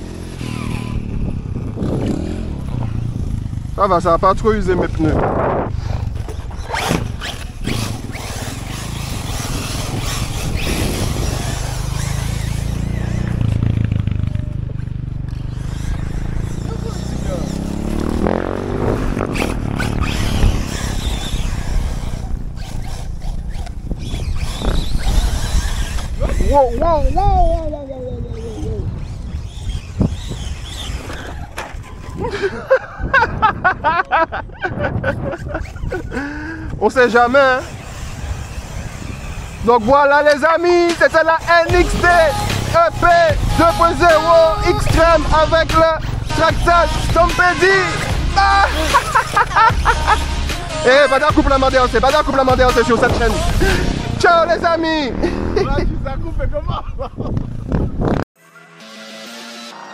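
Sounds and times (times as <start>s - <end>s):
tyre and road noise: 0.0s - 58.3s
electric toy car motor whine: 0.3s - 2.4s, 5.7s - 13.7s, 15.3s - 32.1s, 37.0s - 51.0s
indistinct voices: 15.5s - 31.5s, 36.1s - 56.1s.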